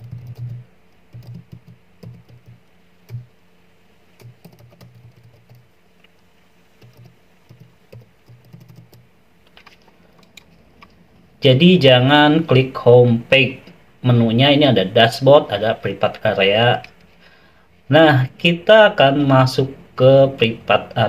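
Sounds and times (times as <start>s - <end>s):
typing on computer keyboard: 0.0s - 3.3s, 4.2s - 5.6s, 6.8s - 9.0s.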